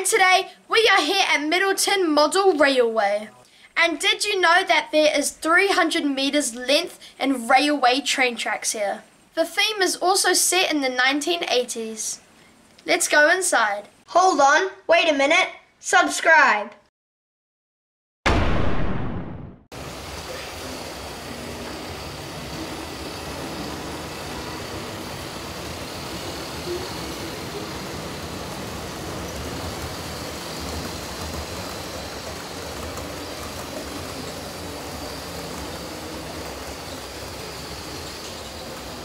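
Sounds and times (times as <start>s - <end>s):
model trains rumbling on track: 19.8s - 39.0s.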